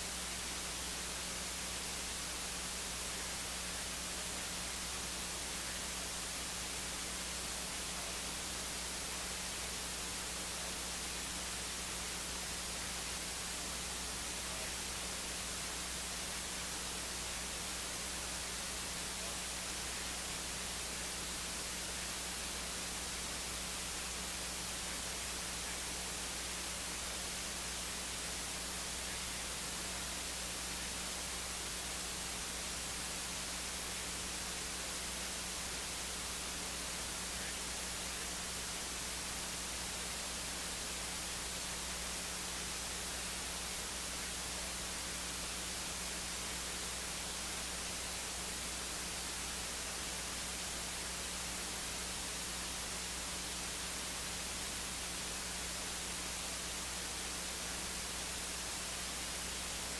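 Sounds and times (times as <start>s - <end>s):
electronic hiss: 0.0s - 59.9s
low steady hum: 0.0s - 59.9s.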